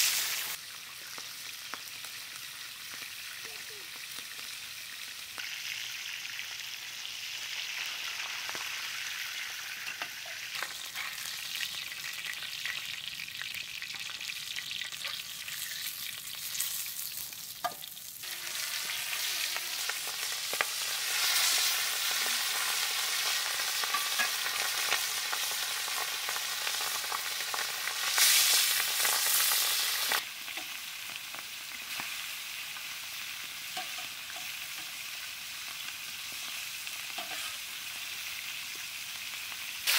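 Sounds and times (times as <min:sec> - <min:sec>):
fish sizzling in hot oil: 0:00.0 - 0:39.9
metal spatula scraping pan: 0:37.2 - 0:37.6.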